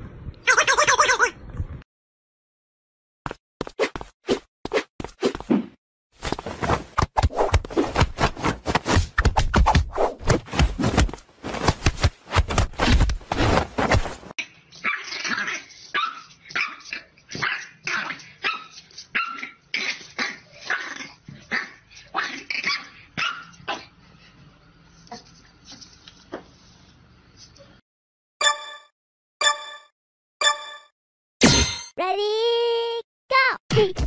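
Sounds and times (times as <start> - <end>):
puppy barking in high yips: 16.0 - 19.6, 22.7 - 23.6.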